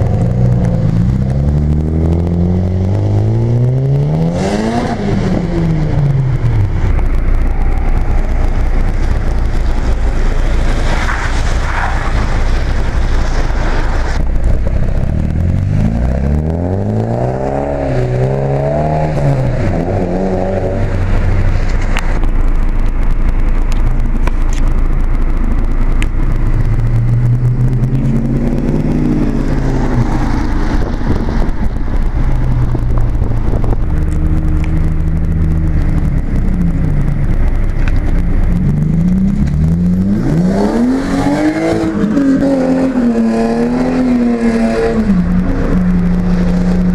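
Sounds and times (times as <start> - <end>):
car engines revving: 0.0 - 46.9
rain: 0.0 - 46.9
tyres hissing on wet road: 9.6 - 14.3.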